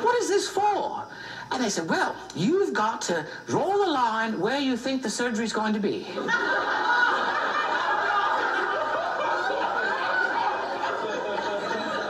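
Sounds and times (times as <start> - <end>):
audience laughing: 6.1 - 12.0.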